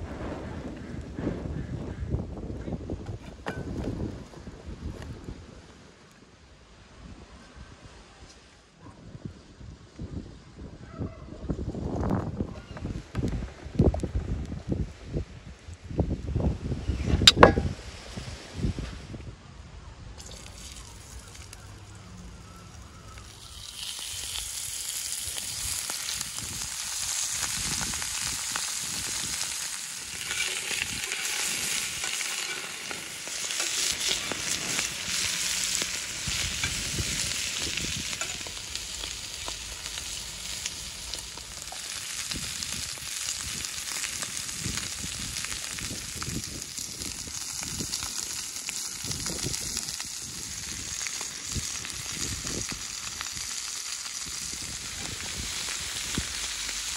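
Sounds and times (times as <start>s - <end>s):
food sizzling in hot oil: 20.2s - 56.9s
fork scraping a pan: 30.1s - 36.8s.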